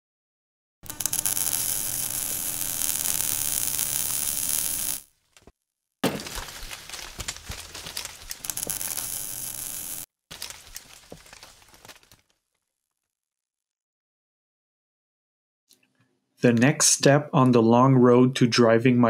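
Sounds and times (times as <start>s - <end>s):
sharp clicks: 0.8s - 5.0s, 8.2s - 10.1s
crackling electrical buzz: 0.8s - 5.1s, 7.8s - 10.1s
steady hum: 0.8s - 5.1s, 8.5s - 10.1s.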